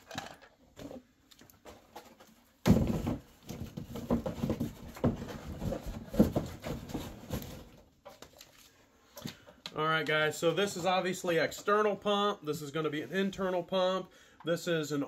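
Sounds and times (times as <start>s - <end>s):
cardboard packaging rustling: 0.0s - 8.9s.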